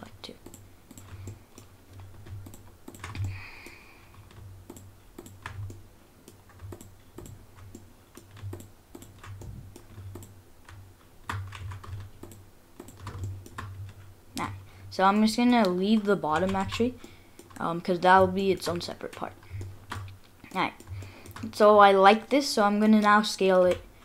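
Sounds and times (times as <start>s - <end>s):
keyboard keys clicking: 0.4s - 14.5s, 15.2s - 21.7s
mouse buttons clicking: 2.3s - 10.4s.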